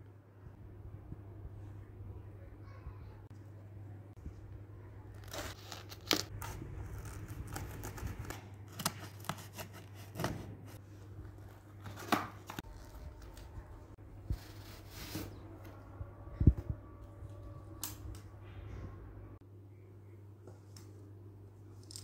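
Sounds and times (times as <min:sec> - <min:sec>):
plastic and cardboard tearing: 0:05.2 - 0:10.5.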